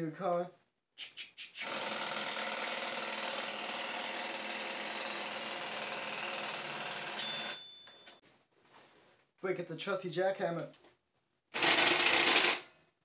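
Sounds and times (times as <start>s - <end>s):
typewriter carriage bell ring: 7.0s - 8.2s
typewriter rapid rattle: 11.6s - 12.6s.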